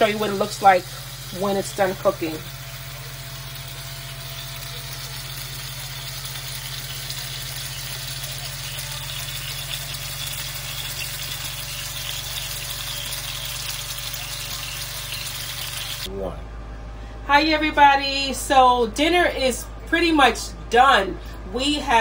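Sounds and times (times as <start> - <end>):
skewers sizzling on grill: 0.0 - 16.1
constant low hum: 0.0 - 22.0.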